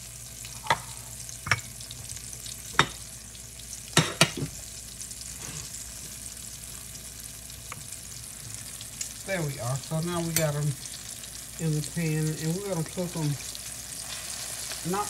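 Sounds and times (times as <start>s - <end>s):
chicken frying in oil: 0.0s - 15.0s.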